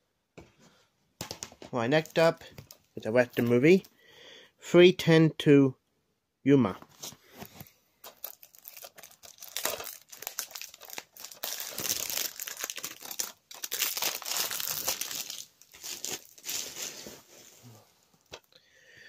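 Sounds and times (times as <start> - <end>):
plastic packaging crinkling: 1.9 - 3.8, 7.4 - 17.4.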